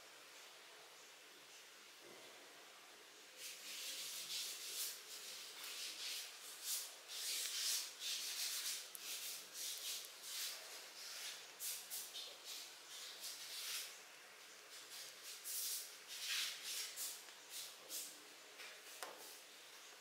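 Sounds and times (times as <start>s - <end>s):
sandpaper rubbing back and forth: 3.4s - 14.0s, 14.7s - 18.2s.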